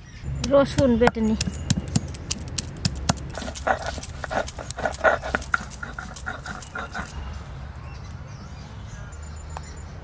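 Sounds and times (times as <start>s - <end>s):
garlic cloves cracking: 1.4s - 6.8s
stone grinding strokes: 1.4s - 7.1s.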